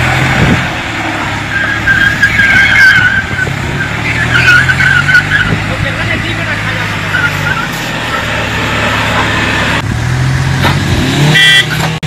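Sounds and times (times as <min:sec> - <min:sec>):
engines running hard under load: 0:00.0 - 0:12.0
wavering high-pitched squeal: 0:01.5 - 0:05.7, 0:06.9 - 0:09.8.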